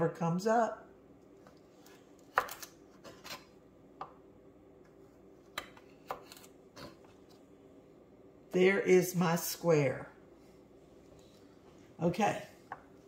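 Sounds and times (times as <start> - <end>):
knife cutting carrot on board: 2.3 - 3.5, 5.5 - 7.0.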